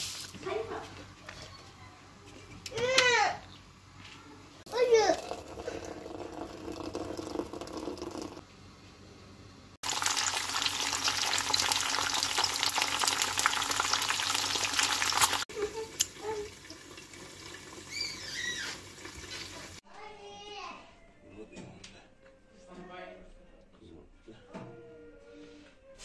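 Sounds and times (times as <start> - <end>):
eggs sizzling and popping in a pan: 9.8 - 19.8.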